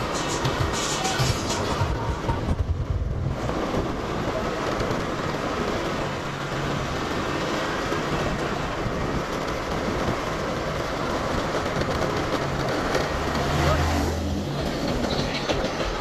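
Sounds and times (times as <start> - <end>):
road noise: 0.0 - 16.0
wind rush: 0.0 - 16.0.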